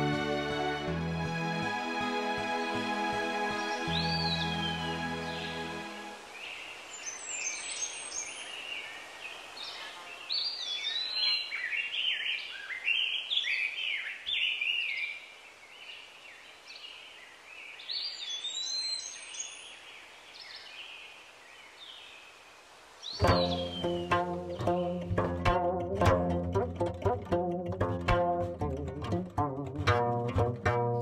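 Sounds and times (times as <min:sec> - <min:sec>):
plucked string music: 0:00.0 - 0:06.2, 0:23.2 - 0:31.0
songbirds singing and chirping: 0:03.2 - 0:22.4, 0:23.0 - 0:27.6
faint hiss: 0:03.4 - 0:12.0, 0:14.8 - 0:24.1.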